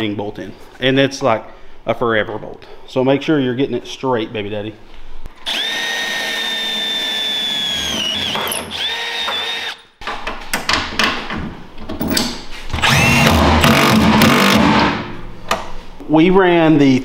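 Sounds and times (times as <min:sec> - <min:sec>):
cordless drill whining: 0:05.4 - 0:09.8, 0:12.8 - 0:14.7.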